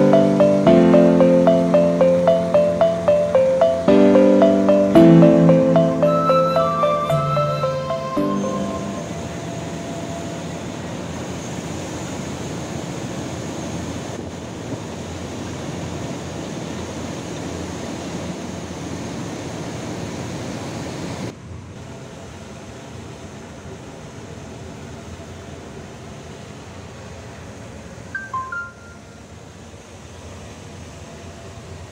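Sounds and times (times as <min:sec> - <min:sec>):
machinery hum: 0:00.0 - 0:21.3.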